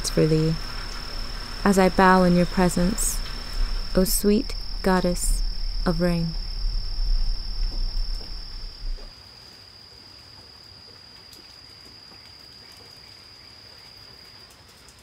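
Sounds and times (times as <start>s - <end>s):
insect trilling: 0.0s - 9.1s
low rumble: 0.0s - 9.1s.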